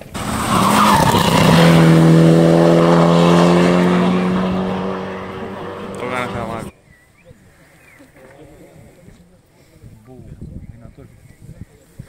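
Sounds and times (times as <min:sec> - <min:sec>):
rally car engine passing by: 0:00.0 - 0:06.7.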